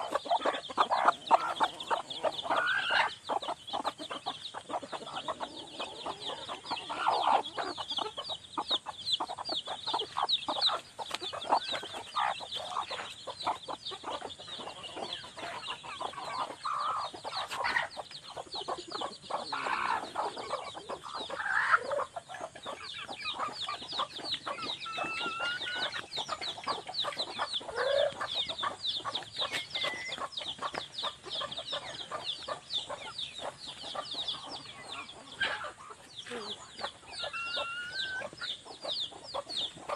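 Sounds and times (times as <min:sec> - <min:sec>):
chickens clucking: 0:00.0 - 0:39.9.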